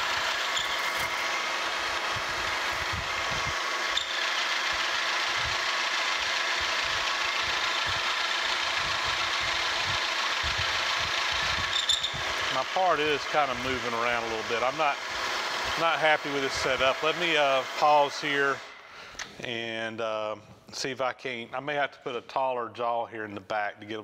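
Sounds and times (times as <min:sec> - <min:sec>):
low rumble from cutting: 0:00.0 - 0:18.7
milling machine whine: 0:00.0 - 0:18.8.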